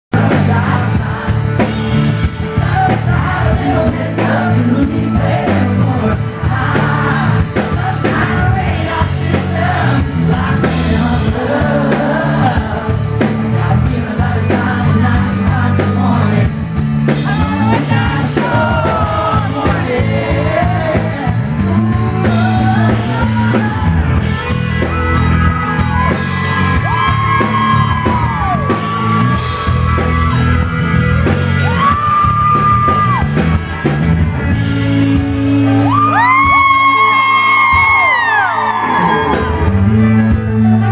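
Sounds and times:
man singing: 0.1s - 24.0s, 34.6s - 38.1s
live country-pop band: 0.1s - 40.9s.

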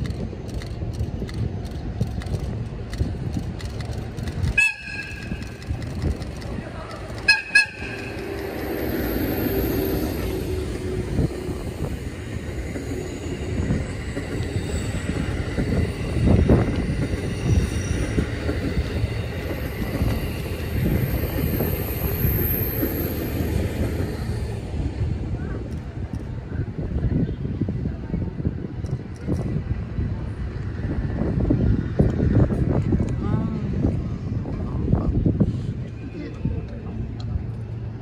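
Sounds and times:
rumble of wheels on rail: 0.0s - 38.0s
train horn blast: 4.6s - 5.4s, 7.2s - 8.6s.

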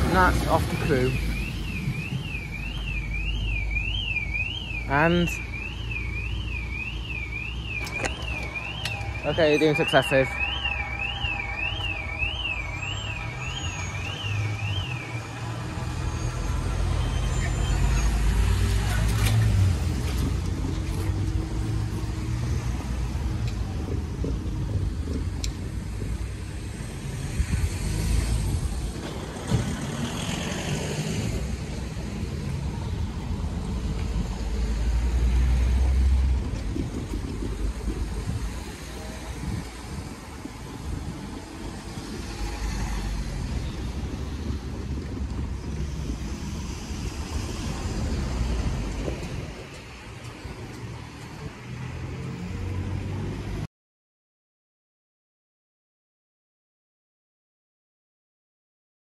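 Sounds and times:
wind buffeting microphone: 22.9s - 30.0s, 35.7s - 51.6s.

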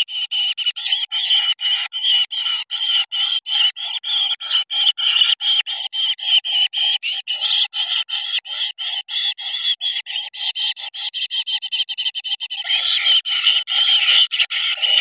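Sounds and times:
bird nestlings calling harshly: 12.6s - 13.2s.

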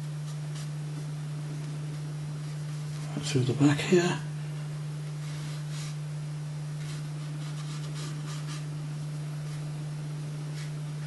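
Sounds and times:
steady low hum: 0.0s - 11.0s
brush strokes on paper: 5.2s - 6.0s, 6.8s - 8.7s, 10.5s - 10.8s.

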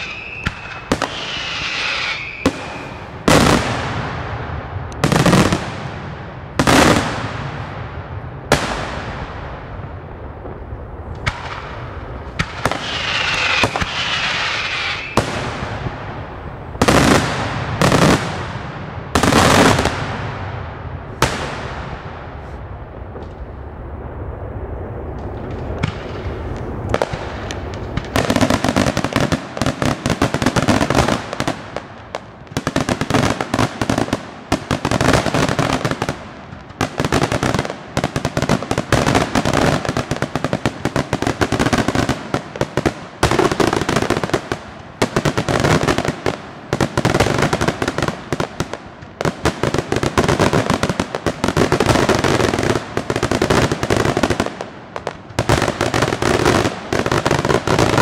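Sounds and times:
firework bangs: 0.0s - 58.0s
firework crackling: 0.0s - 58.0s.

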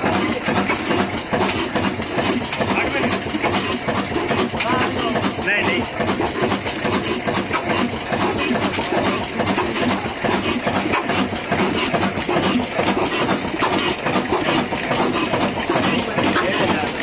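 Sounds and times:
stationary diesel engine running: 0.0s - 17.0s.

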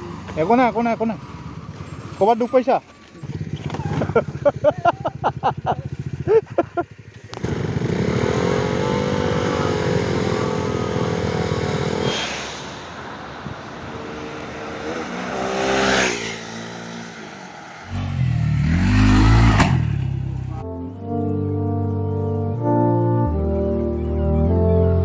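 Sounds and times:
motorcycle engine steady note: 0.0s - 12.0s, 18.1s - 25.0s
motorcycle passing by: 0.0s - 20.6s.

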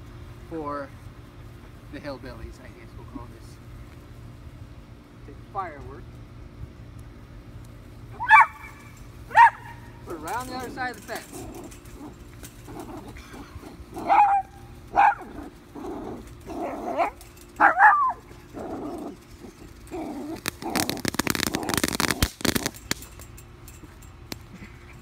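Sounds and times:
small dogs yipping and barking: 8.1s - 22.1s
firework crackling: 19.6s - 23.2s.

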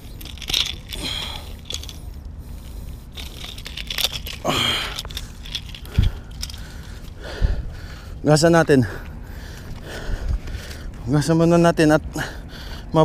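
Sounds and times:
pliers and metal gripper clicking: 0.0s - 2.0s, 3.2s - 6.6s.

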